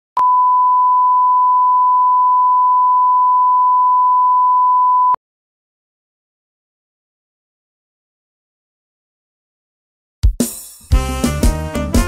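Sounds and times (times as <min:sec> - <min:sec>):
steady test tone beep: 0:00.2 - 0:05.2.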